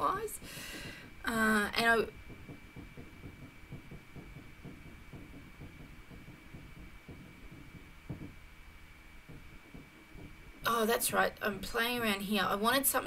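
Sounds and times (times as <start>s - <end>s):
low irregular rumble: 0.0s - 13.0s
soft thump: 2.1s - 10.7s.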